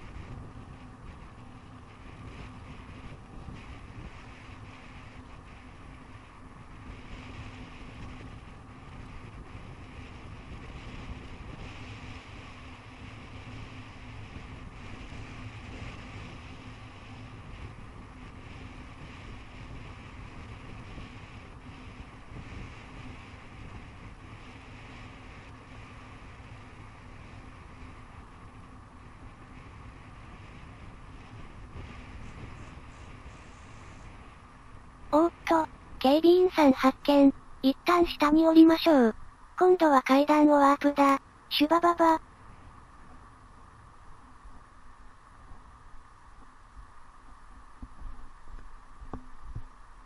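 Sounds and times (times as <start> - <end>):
bicycle rolling on paved road: 0.0 - 35.1
wind noise on microphone: 0.0 - 40.6, 41.2 - 50.0.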